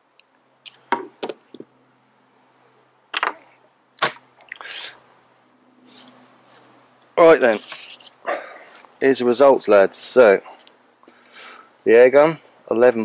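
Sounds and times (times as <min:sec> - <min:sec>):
paper rustling: 0:07.4 - 0:08.2.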